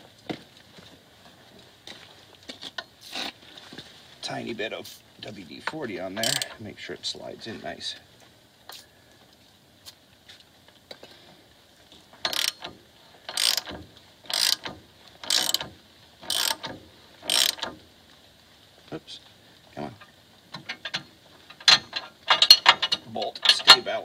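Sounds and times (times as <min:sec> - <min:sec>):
socket ratchet clicking: 0:12.3 - 0:12.7, 0:13.3 - 0:17.7.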